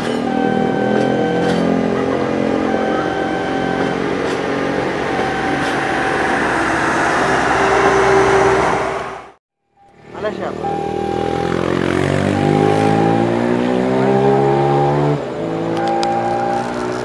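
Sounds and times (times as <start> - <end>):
train wheels roaring on rails: 0.0 - 9.4
generator low hum: 0.0 - 16.7.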